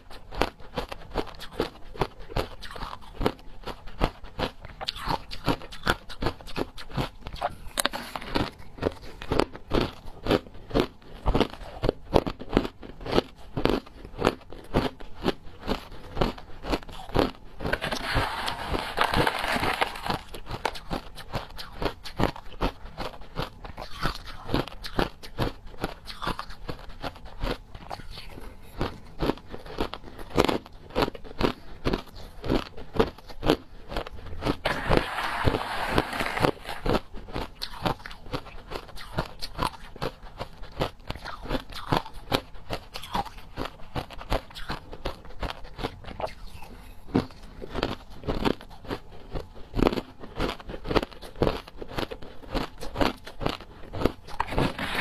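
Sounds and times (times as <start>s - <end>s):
ice being chewed: 0.0s - 55.0s
metal spoon scraping ice: 17.6s - 20.8s, 34.6s - 37.0s, 54.3s - 55.0s.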